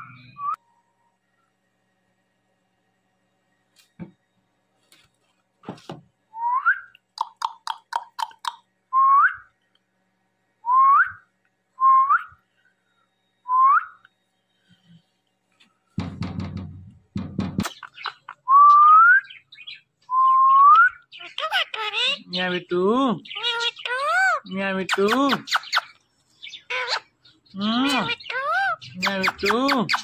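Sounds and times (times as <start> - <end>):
parakeet chirps: 7.2 - 8.6, 17.6 - 19.8, 21.0 - 22.3, 23.2 - 30.0
rustling knocks: 16.0 - 17.8.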